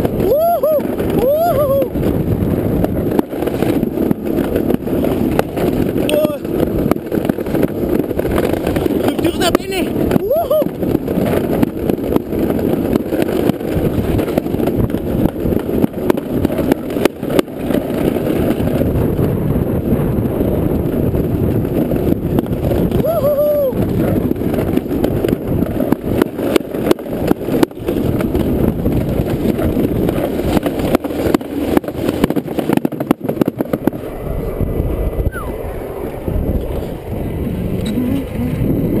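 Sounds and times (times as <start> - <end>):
sled knocking over bumps: 0.0 - 37.0
sled rumbling and rattling on track: 0.0 - 39.0
brief high squeak: 35.2 - 35.6.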